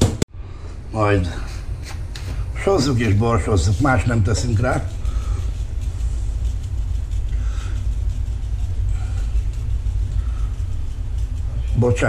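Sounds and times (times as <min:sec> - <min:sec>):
low rumble: 0:02.4 - 0:12.0.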